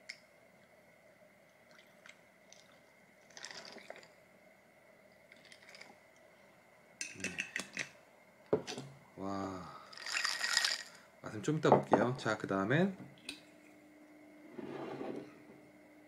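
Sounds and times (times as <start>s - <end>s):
coffee trickling into a glass: 1.7s - 4.2s
ice clicking and crackling: 9.9s - 11.0s.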